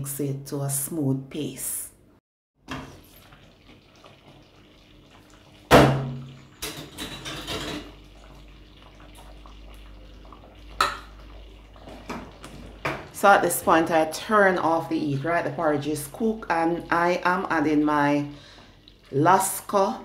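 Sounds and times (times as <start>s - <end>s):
cookware clinks and scrapes: 6.6s - 8.0s.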